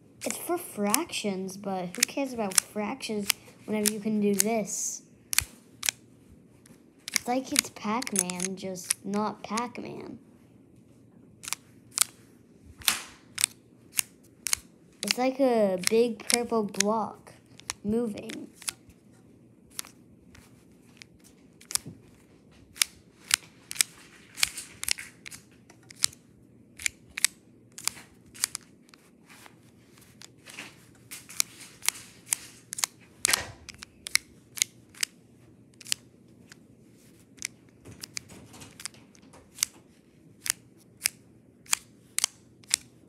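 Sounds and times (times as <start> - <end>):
plastic tiles clicking: 1.9 - 4.7, 7.1 - 9.8, 11.4 - 12.2, 13.3 - 18.9, 19.7 - 21.8, 22.7 - 26.2, 26.8 - 29.1, 31.2 - 36.6, 37.4 - 39.8, 40.4 - 43.0.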